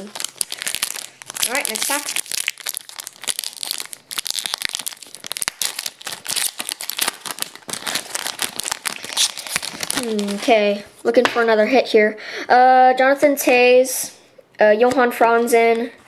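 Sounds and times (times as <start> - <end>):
foil wrapper crinkling and tearing: 0.0 - 10.7.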